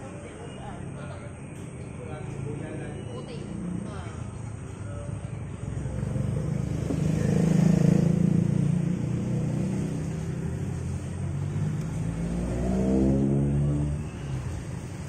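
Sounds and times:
engine accelerating: 0:05.5 - 0:15.0
vehicle engine passing: 0:05.5 - 0:15.0.

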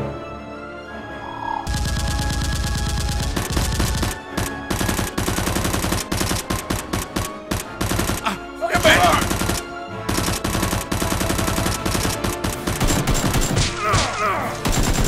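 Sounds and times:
background music: 0:00.0 - 0:15.0
machine-gun fire bursts: 0:01.7 - 0:13.8, 0:14.6 - 0:15.0
person speaking: 0:08.2 - 0:09.3.

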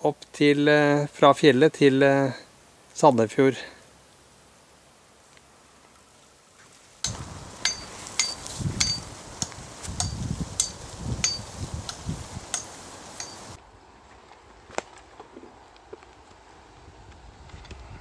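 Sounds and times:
footsteps through tall grass: 0:05.8 - 0:14.4
gear clinking: 0:07.0 - 0:13.5.

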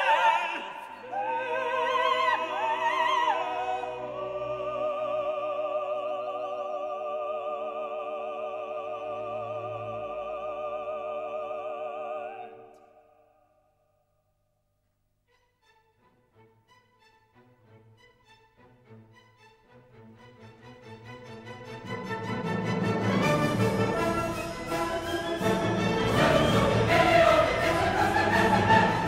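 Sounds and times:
operatic singing: 0:00.0 - 0:13.4, 0:20.3 - 0:29.0
orchestral accompaniment: 0:15.3 - 0:29.0.

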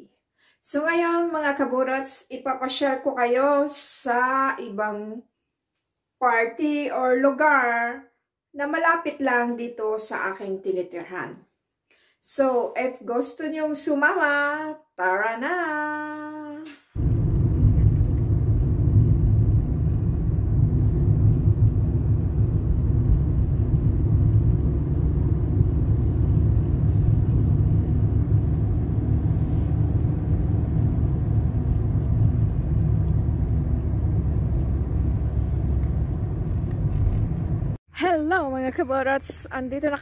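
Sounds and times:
car engine and tyre rumble: 0:17.0 - 0:37.8.

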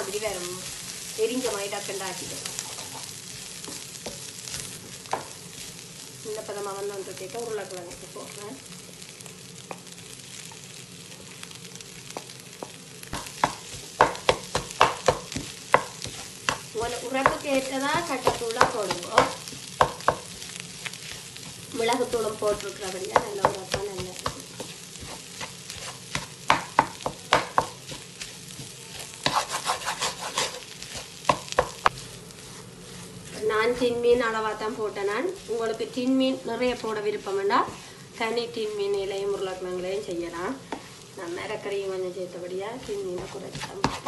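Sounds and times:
low frying sizzle: 0:00.0 - 0:44.0
utensil scraping a pan: 0:13.2 - 0:39.0, 0:42.8 - 0:44.0.

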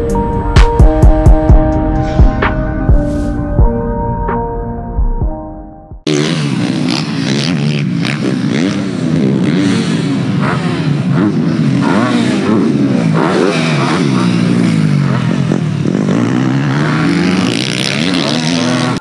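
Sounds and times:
dirt bike engines revving: 0:06.1 - 0:19.0.

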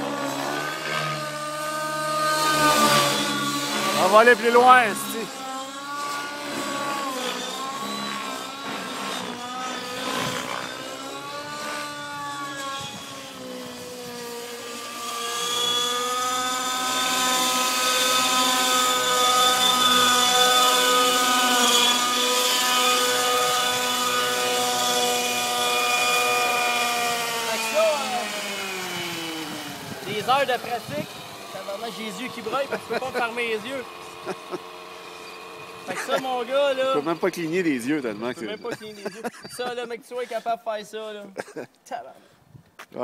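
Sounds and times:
model helicopter rotor whine: 0:00.0 - 0:41.2.

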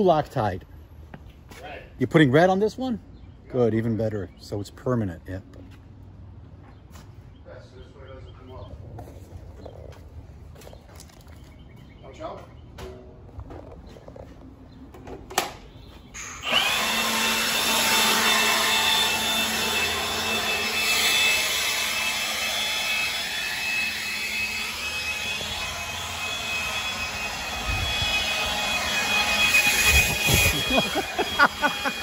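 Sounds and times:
leaf blower running: 0:16.2 - 0:32.0.

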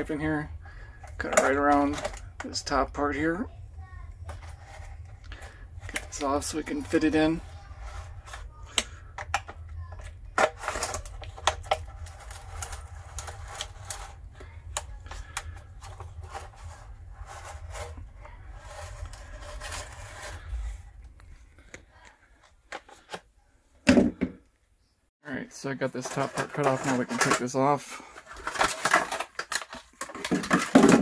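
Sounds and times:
low rumble: 0:01.9 - 0:21.7
knife scraping through plastic: 0:10.4 - 0:20.8, 0:26.0 - 0:31.0.

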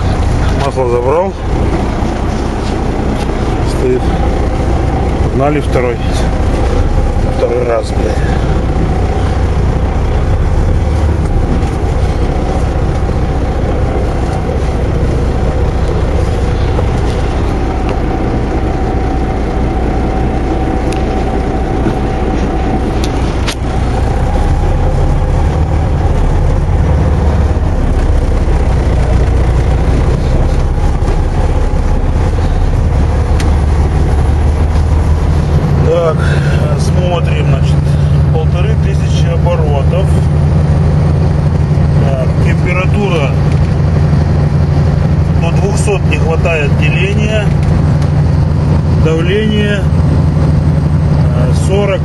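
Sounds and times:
diesel truck engine running: 0:00.0 - 0:52.0.

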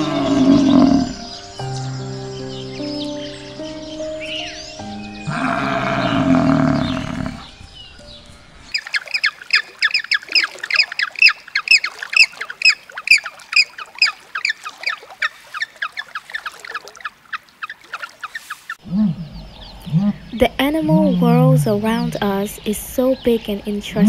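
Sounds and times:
low animal call: 0:00.0 - 0:01.3, 0:05.2 - 0:07.6, 0:18.8 - 0:22.2.

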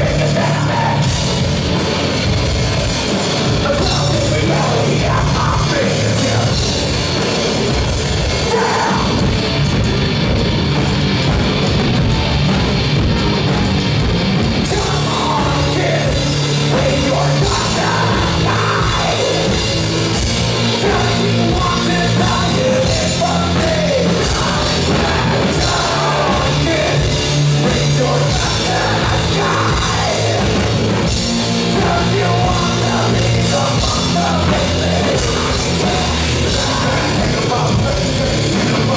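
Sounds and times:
singer's vocals: 0:00.0 - 0:01.4, 0:03.5 - 0:06.9, 0:08.2 - 0:09.4, 0:14.6 - 0:38.9
heavy rock band playing: 0:00.0 - 0:38.9.

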